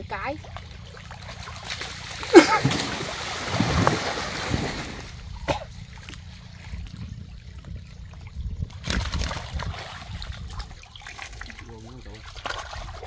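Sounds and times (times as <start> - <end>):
muddy water splashing: 0.0 - 13.0
sharp splash: 1.2 - 5.2.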